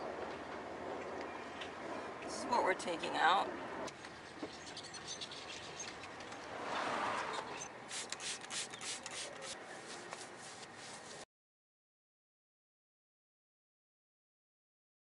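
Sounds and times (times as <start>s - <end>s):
cloth rubbing on painted metal: 7.9s - 11.3s.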